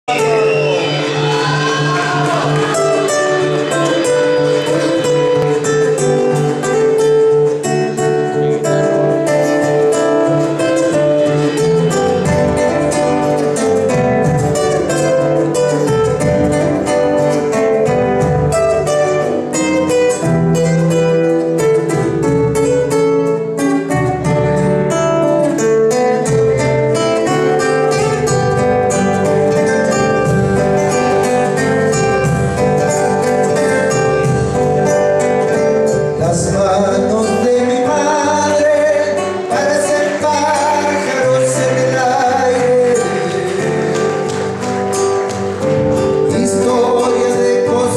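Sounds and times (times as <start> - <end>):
acoustic guitars strumming: 0.0 - 47.9
man singing: 35.5 - 44.4, 46.0 - 47.9.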